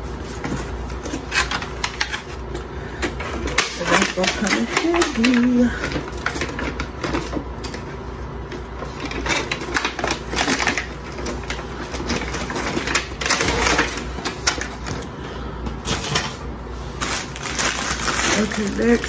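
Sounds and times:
plastic packaging crinkling: 16.9 - 19.0.

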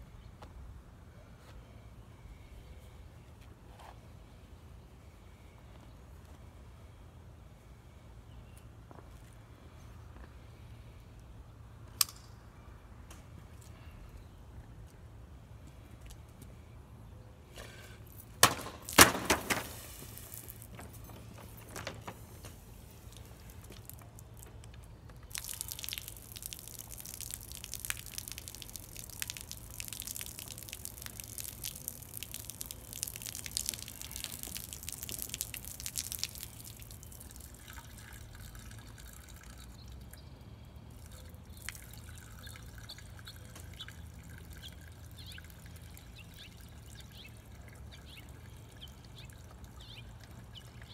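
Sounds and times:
liquid pouring and splashing: 25.3 - 39.8, 41.0 - 50.9.

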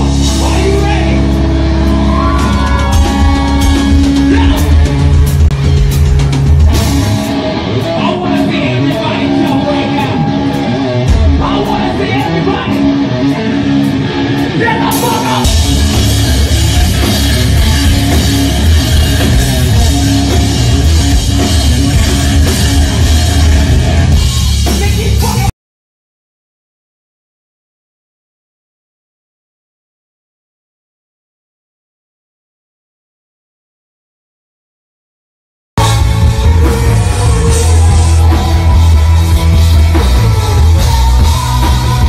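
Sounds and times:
loud rock band playing: 0.0 - 25.5, 35.8 - 42.0.

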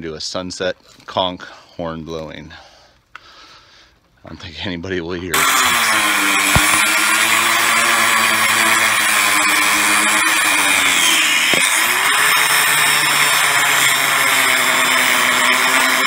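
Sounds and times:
angle grinder cutting shell: 5.3 - 16.0.

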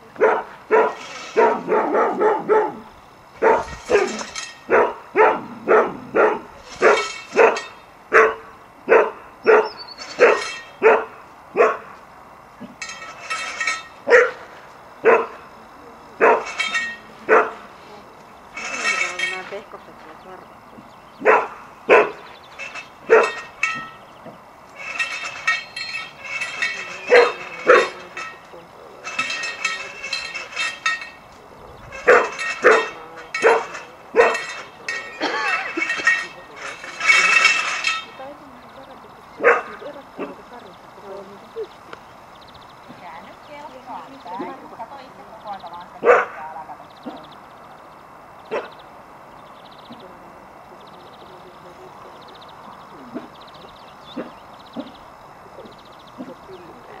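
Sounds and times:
dog barking: 0.2 - 12.0, 14.0 - 15.5, 16.2 - 16.6, 17.3 - 17.7, 21.2 - 22.2, 23.1 - 23.4, 27.1 - 28.0, 32.0 - 34.5, 39.4 - 40.4, 46.0 - 47.2, 48.5 - 48.8, 54.2 - 54.9.

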